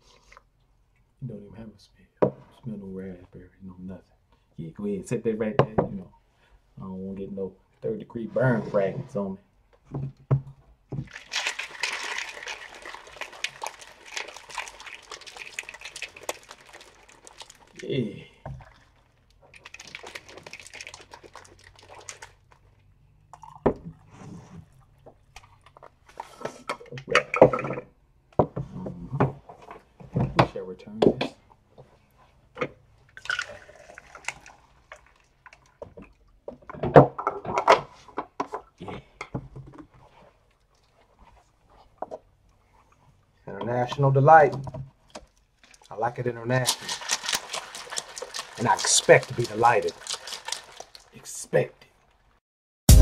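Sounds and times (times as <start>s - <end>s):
coffee pouring onto ice: 11.0s - 22.6s, 33.2s - 35.6s, 46.6s - 51.4s
ice clicking and crackling: 11.1s - 22.7s, 33.2s - 35.8s, 45.6s - 46.0s, 46.6s - 52.1s.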